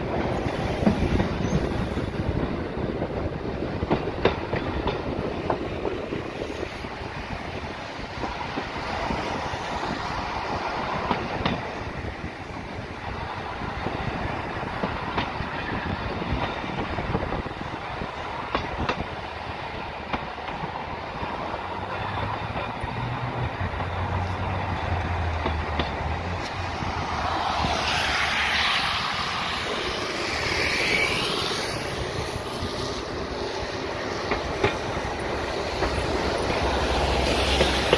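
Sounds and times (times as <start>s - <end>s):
tram wheels rumbling: 0.0s - 37.9s
clacks over rail joints: 0.1s - 12.9s, 13.5s - 29.8s, 34.0s - 37.9s
wheels squealing: 27.2s - 33.0s.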